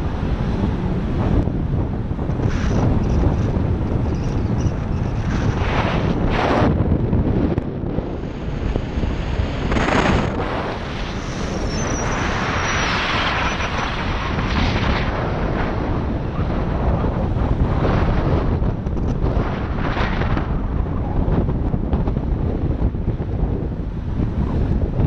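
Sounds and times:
low rumble of driving vehicle: 0.0s - 5.6s
wind buffeting microphone: 0.0s - 25.0s.

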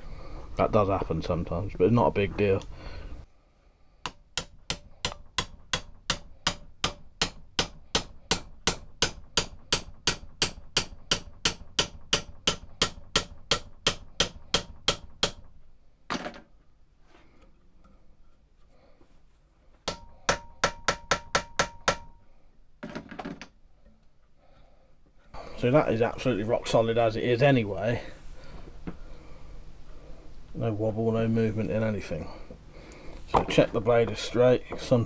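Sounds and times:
hammer tapping: 4.0s - 15.5s, 19.8s - 22.2s.

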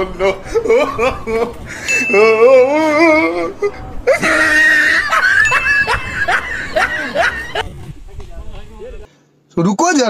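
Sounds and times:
wavering cry: 0.0s - 7.6s
young men laughing and shrieking: 0.0s - 7.7s.

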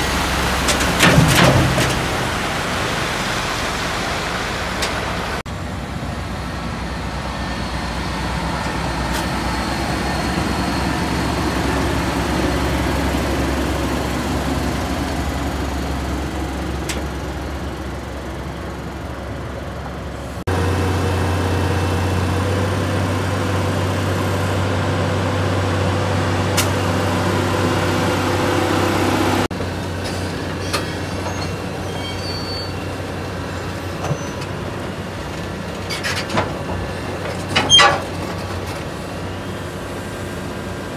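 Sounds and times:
excavator engine running: 0.0s - 30.6s
truck diesel engine running: 0.0s - 30.6s.

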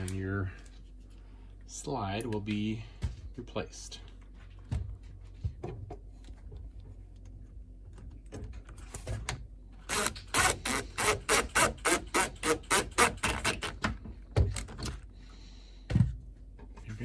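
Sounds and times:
cordless drill driving screw: 9.9s - 13.7s.

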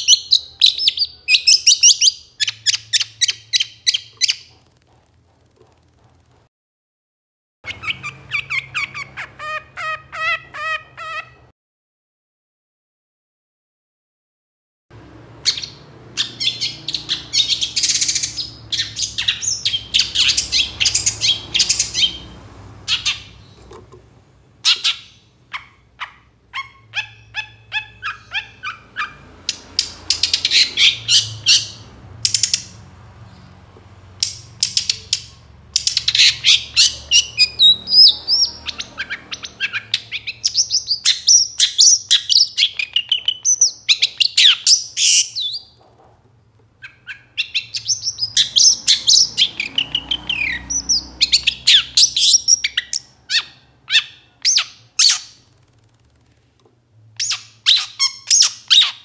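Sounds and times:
bird harsh scratchy chatter: 0.0s - 6.5s.

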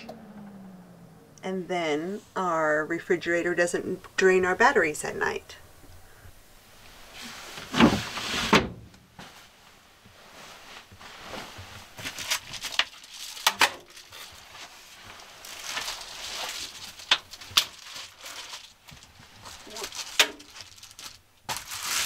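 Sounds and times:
bumps and clicks: 0.0s - 2.2s
bedding rustling: 6.3s - 22.0s.

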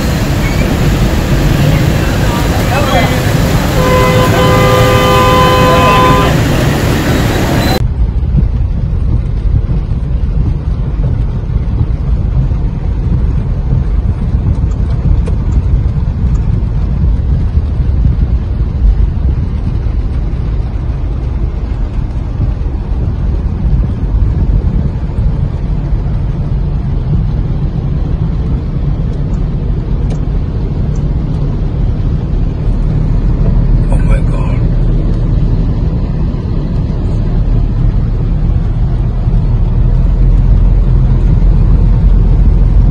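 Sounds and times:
loud low rumble: 0.0s - 42.9s
vehicle horn: 3.2s - 7.8s.

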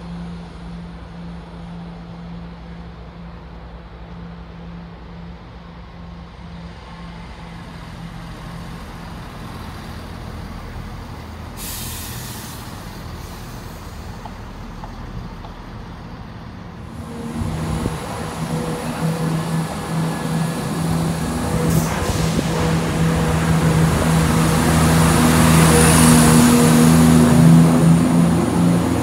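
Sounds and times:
diesel train engine: 0.0s - 29.0s
brake air hiss: 11.5s - 14.6s.

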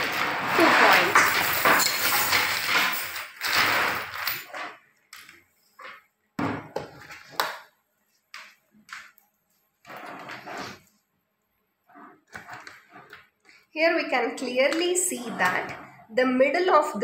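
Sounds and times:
metal chain clinking on a table: 0.0s - 6.0s.

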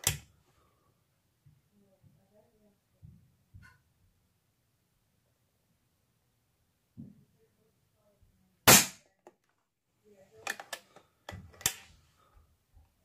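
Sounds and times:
air rifle crack: 8.7s - 9.0s.

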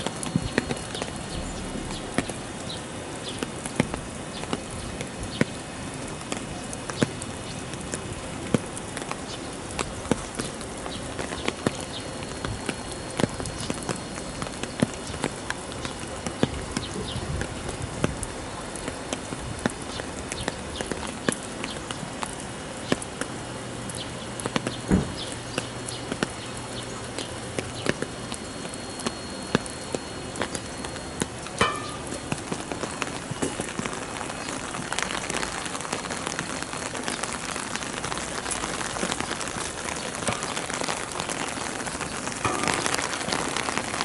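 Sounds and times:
heavy rain pattering: 0.0s - 44.0s
low hum: 0.4s - 3.4s.

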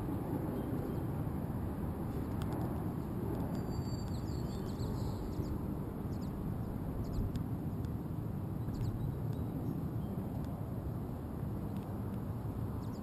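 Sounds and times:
faint bird chirps: 3.5s - 6.4s.

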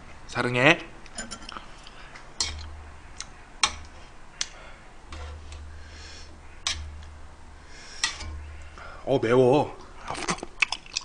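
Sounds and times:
soft handling rumbles: 5.0s - 9.3s.

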